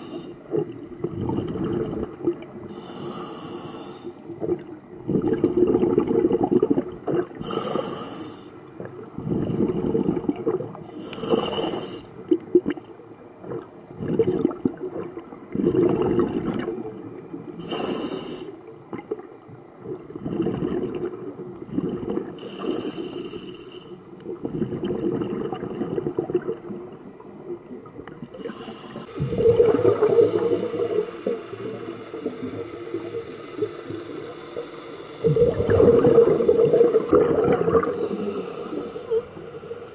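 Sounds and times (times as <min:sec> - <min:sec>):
diver breathing through regulator: 0:00.0 - 0:00.5, 0:02.7 - 0:04.3, 0:07.4 - 0:08.6, 0:10.9 - 0:12.2, 0:17.6 - 0:18.6, 0:22.4 - 0:24.1, 0:28.4 - 0:33.0, 0:33.6 - 0:39.9
bubbling: 0:00.0 - 0:02.7, 0:04.3 - 0:07.8, 0:08.8 - 0:17.0, 0:18.8 - 0:22.9, 0:24.2 - 0:39.9.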